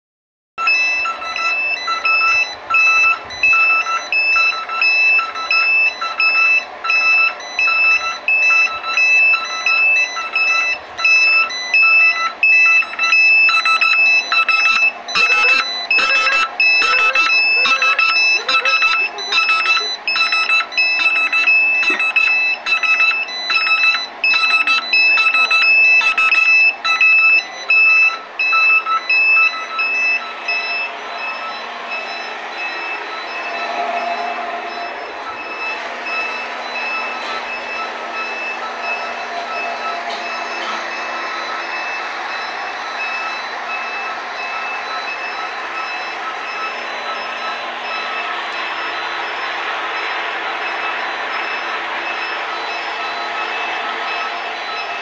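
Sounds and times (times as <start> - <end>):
alarm buzzer beeping: 0.6 - 55.0
harsh pulsing buzzer: 0.6 - 55.0.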